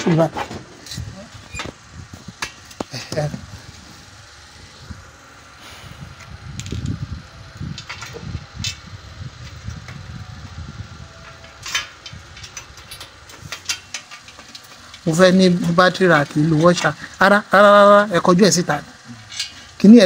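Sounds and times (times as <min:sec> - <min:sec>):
metallic clicks of nuts and bolts: 0:19.3 - 0:19.8.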